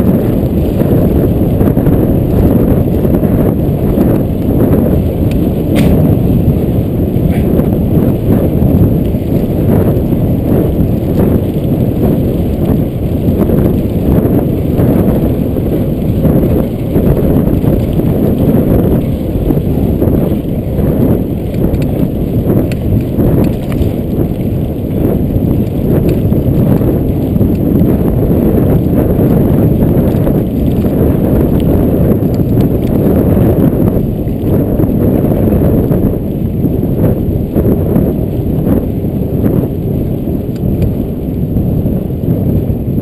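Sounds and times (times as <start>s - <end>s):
bike rattling over bumps: 0.0s - 43.0s
bike tyres rumbling on dirt: 0.0s - 43.0s.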